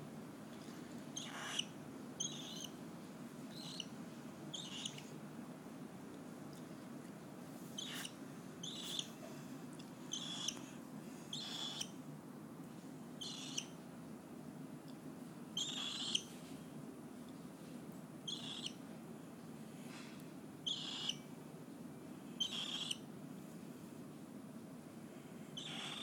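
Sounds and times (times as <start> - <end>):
cockatiel harsh chirps: 1.2 - 2.8, 3.5 - 3.9, 4.5 - 5.1, 7.8 - 9.2, 10.1 - 10.6, 11.3 - 12.0, 13.2 - 13.8, 15.6 - 16.3, 18.3 - 18.8, 20.7 - 21.2, 22.4 - 23.0, 25.6 - 26.0.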